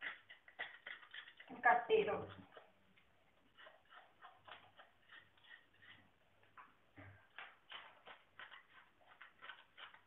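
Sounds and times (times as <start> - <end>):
knife scraping and tapping: 3.4 - 10.0.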